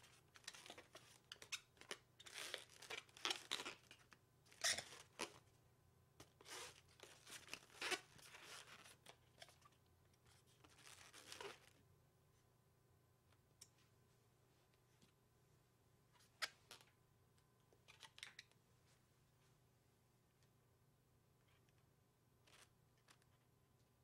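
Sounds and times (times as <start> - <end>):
balloon rubbing and crinkling: 0.0 - 5.4, 6.3 - 9.2, 10.3 - 11.8.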